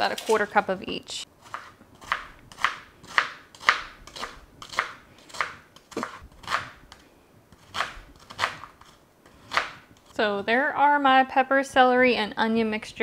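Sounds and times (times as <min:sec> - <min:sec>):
knife chopping onion on board: 0:01.5 - 0:06.8, 0:07.6 - 0:08.8, 0:09.4 - 0:09.9.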